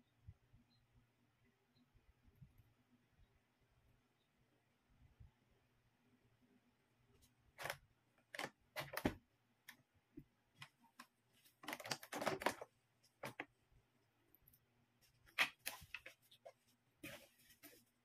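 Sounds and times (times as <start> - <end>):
plastic bottles knocking and clicking: 10.6 - 13.5.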